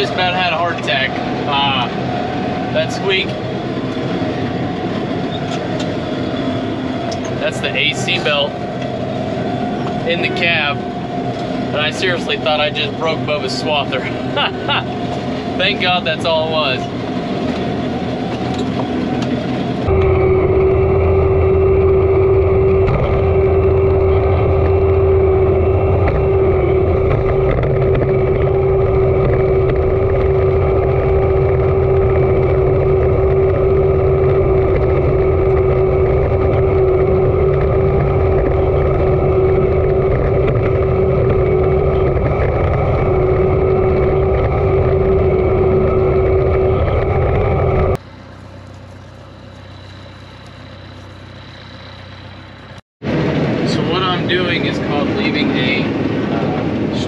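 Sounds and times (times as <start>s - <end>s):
farm machinery droning: 0.0s - 57.0s.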